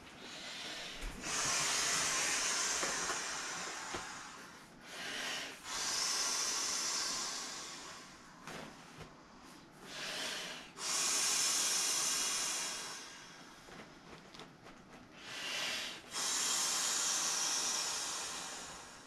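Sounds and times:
person blowing into inflatable valve: 0:01.2 - 0:04.5, 0:05.1 - 0:08.2, 0:09.9 - 0:13.4, 0:15.2 - 0:19.0.

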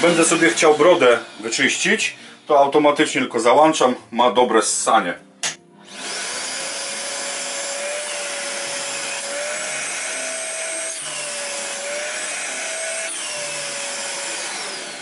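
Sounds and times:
workshop vacuum motor running: 0:00.0 - 0:02.1, 0:05.8 - 0:15.0.

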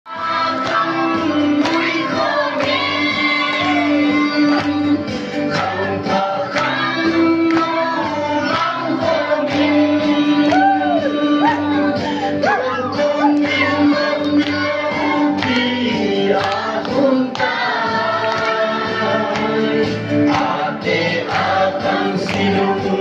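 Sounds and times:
amplified backing music: 0:00.1 - 0:23.0
group of people singing: 0:00.1 - 0:23.0
man singing into a microphone: 0:03.7 - 0:14.4.

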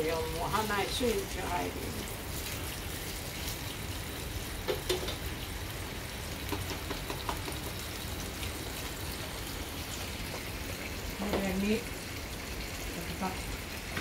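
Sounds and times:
pork sizzling in frying pan: 0:00.0 - 0:14.0.

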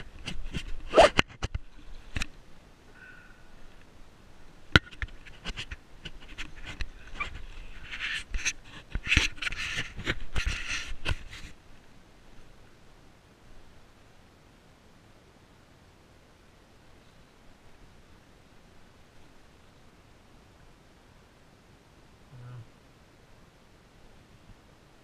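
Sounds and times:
scratchy rubbing on microphone: 0:00.0 - 0:02.3, 0:04.9 - 0:11.6.

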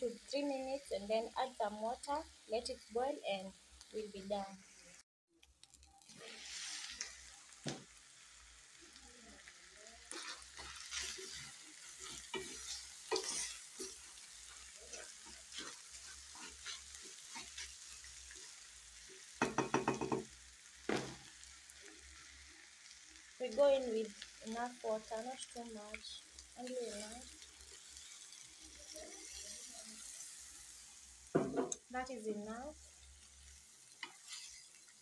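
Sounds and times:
food sizzling in oil: 0:00.0 - 0:35.0
wooden spoon scraping pan: 0:10.1 - 0:18.5, 0:34.0 - 0:34.8
spoon knocking on pan: 0:19.4 - 0:21.2, 0:31.4 - 0:31.8.

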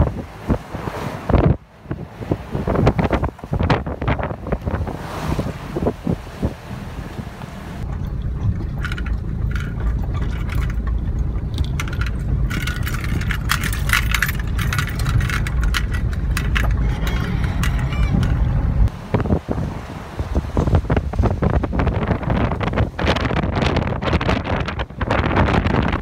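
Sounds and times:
car road rumble: 0:00.0 - 0:26.0
gravel clicking under tyres: 0:05.8 - 0:19.4.

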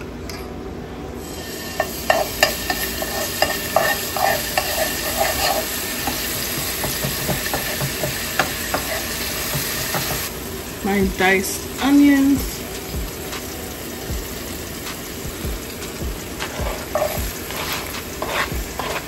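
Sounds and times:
garlic sizzling in oil: 0:01.2 - 0:19.0
spoon scraping and tapping pan: 0:01.8 - 0:10.3, 0:16.4 - 0:19.0.

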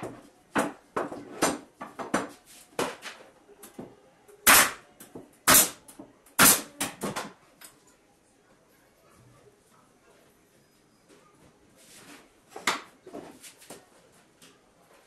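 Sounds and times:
nail gun firing: 0:04.4 - 0:04.8, 0:05.5 - 0:05.8, 0:06.4 - 0:06.8.

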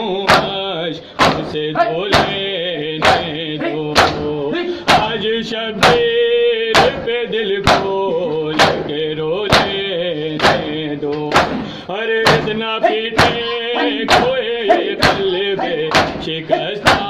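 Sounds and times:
men chanting a lament: 0:00.0 - 0:17.0
hand slapping chest: 0:01.2 - 0:01.5, 0:03.0 - 0:03.3, 0:04.0 - 0:04.3, 0:07.6 - 0:08.9, 0:10.4 - 0:11.6, 0:15.9 - 0:17.0.

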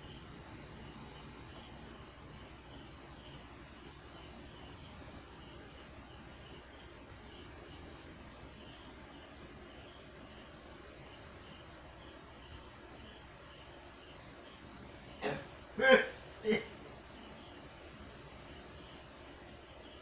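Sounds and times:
crickets trilling: 0:00.0 - 0:20.0.

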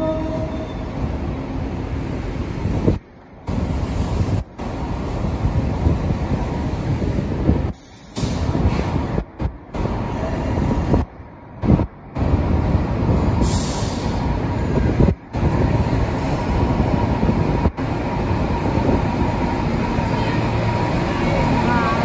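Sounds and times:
train wheels rumbling on rails: 0:00.0 - 0:22.0
hiss of air: 0:07.7 - 0:08.9, 0:13.4 - 0:14.3.

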